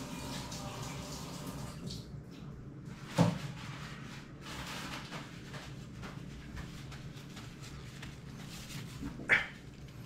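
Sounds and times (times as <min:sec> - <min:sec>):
faint handling rustles: 0:02.9 - 0:10.0.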